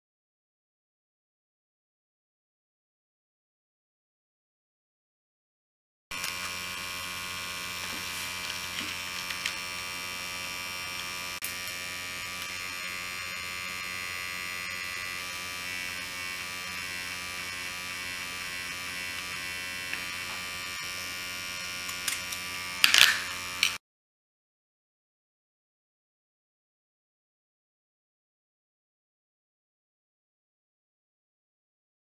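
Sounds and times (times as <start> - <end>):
small electric pump buzzing: 6.1 - 23.8.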